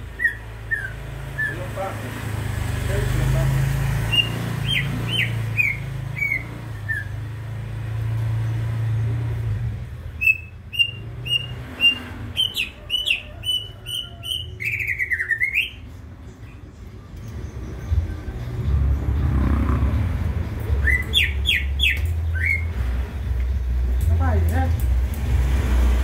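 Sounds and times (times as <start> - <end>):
bird whistling song: 0.1 - 1.7, 4.0 - 7.3, 10.2 - 16.0, 20.7 - 22.8.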